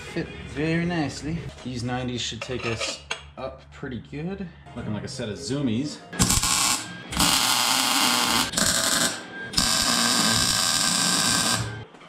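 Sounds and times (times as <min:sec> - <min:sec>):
welder arc crackling: 0:06.2 - 0:11.8.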